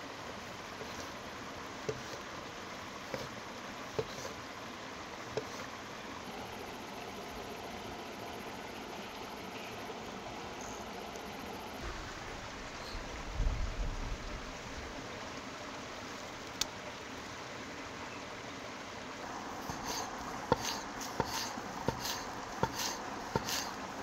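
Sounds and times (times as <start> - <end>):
rushing outdoor ambience: 0.0 - 24.0
low rumble: 11.8 - 15.0.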